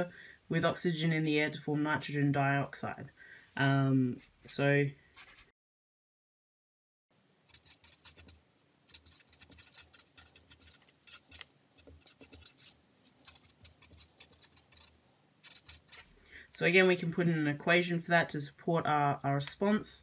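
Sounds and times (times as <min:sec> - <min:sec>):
marker scratching on paper: 0:05.2 - 0:05.5, 0:07.5 - 0:16.1.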